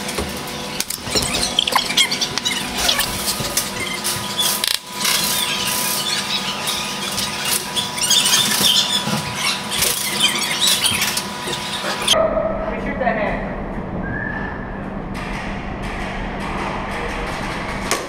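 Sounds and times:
steady hum: 0.0s - 18.0s.

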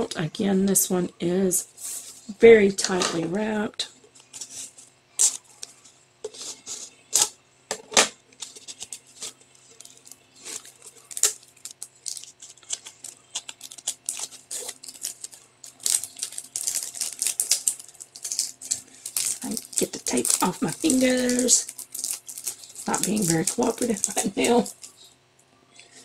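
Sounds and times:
plastic wrapping crinkling: 8.4s - 25.1s.

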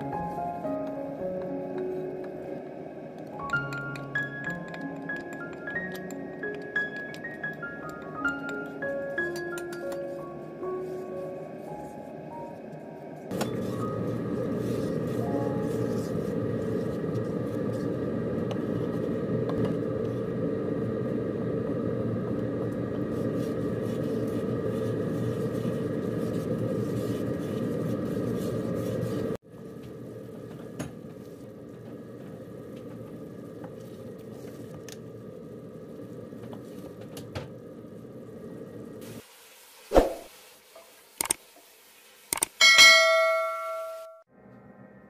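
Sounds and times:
steady hum: 0.0s - 39.1s
sauce simmering in frying pan: 20.2s - 42.3s
wooden spoon scraping a pan: 23.1s - 29.4s.

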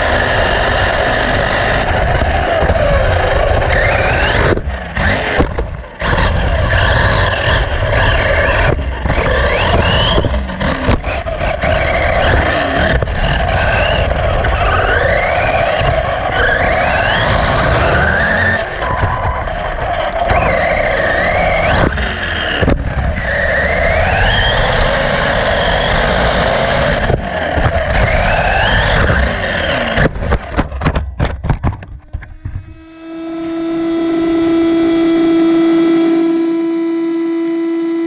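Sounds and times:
toy car motor whine: 0.0s - 30.6s, 32.0s - 38.0s
tyre noise: 0.0s - 32.9s
steady whining hum: 0.0s - 38.0s
car crashing and tumbling: 1.8s - 23.8s, 26.8s - 32.8s.

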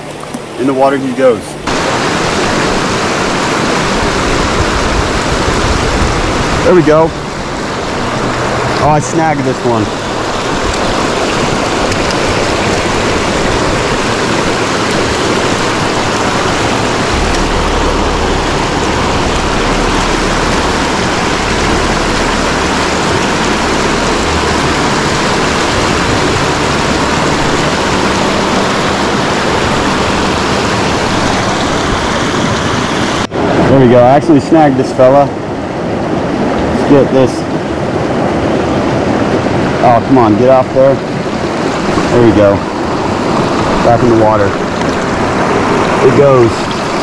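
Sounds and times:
creek rushing over rocks: 0.0s - 47.0s
low rumble: 1.5s - 33.6s.

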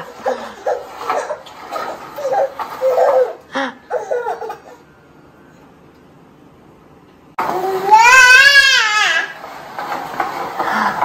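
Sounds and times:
baby giggling: 0.0s - 4.8s.

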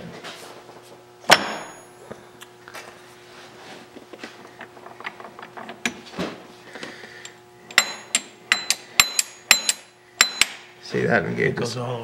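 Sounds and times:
sharp ringing metal clacks: 7.7s - 10.6s.

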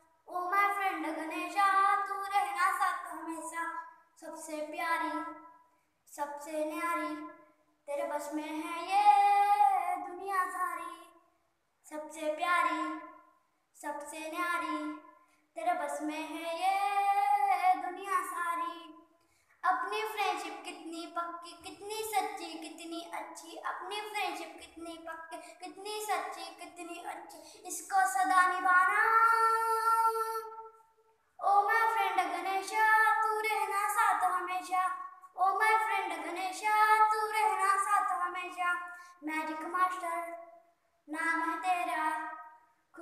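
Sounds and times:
boy singing unaccompanied: 0.3s - 5.3s, 7.9s - 10.9s, 11.9s - 13.0s, 15.6s - 18.9s, 19.6s - 30.6s, 31.4s - 40.3s, 41.1s - 42.4s.

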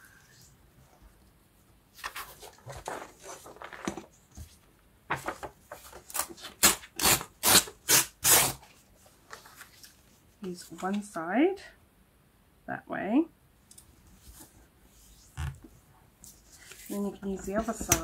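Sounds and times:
paper rustling: 2.0s - 6.8s, 8.5s - 11.2s, 16.2s - 18.0s.

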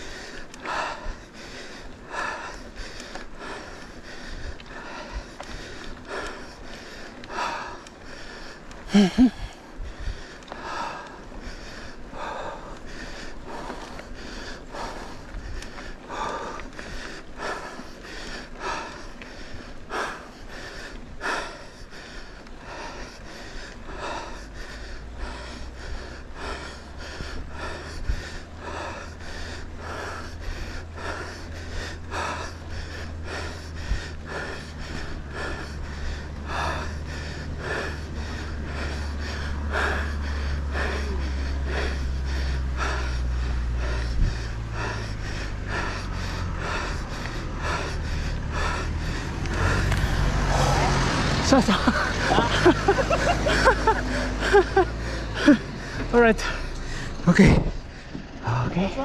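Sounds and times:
person breathing hard: 0.0s - 59.0s
low rumble: 23.8s - 59.0s.

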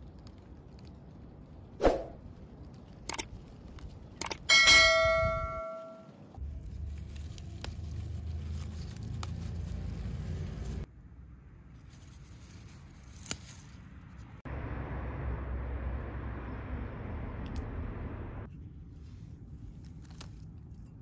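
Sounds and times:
bell ding: 4.5s - 6.1s.

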